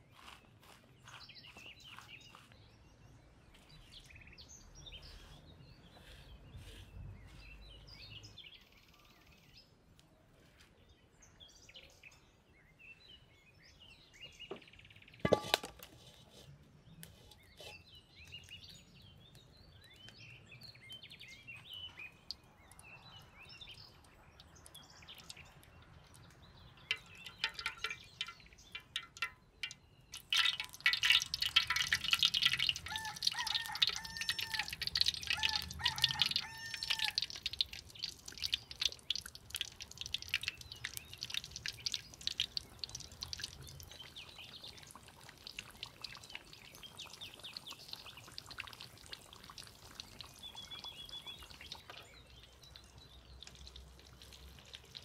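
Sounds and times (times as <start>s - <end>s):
birds chirping: 0.0s - 9.8s, 16.8s - 55.0s
hot oil crackling in a wok: 19.4s - 55.0s.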